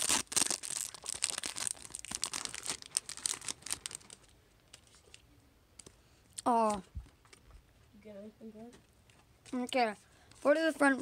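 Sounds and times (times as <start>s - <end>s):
foil wrapper crinkling and tearing: 0.0s - 5.2s.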